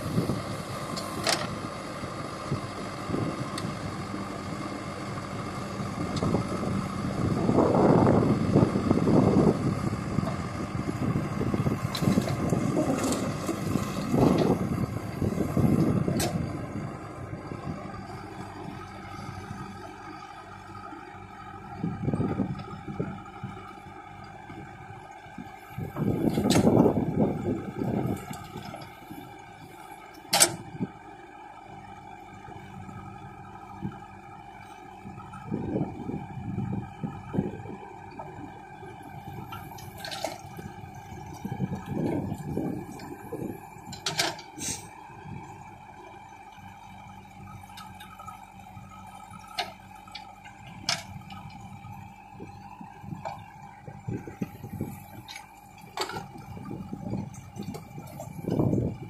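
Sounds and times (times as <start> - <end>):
diesel engine running: 0.0 - 59.0
soil rumbling into trolley: 11.8 - 16.4.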